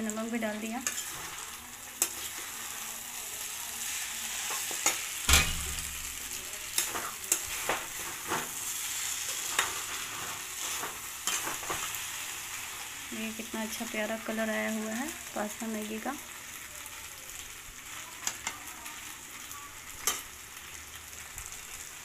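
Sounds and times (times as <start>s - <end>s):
noodles sizzling in a wok: 0.0s - 22.0s
metal spatula scraping a pan: 0.7s - 13.0s.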